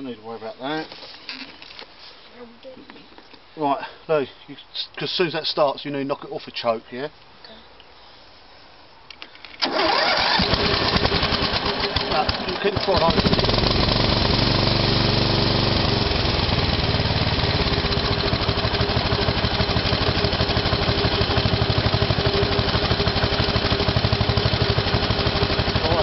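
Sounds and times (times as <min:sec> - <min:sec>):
mower engine idling: 0:09.6 - 0:26.0.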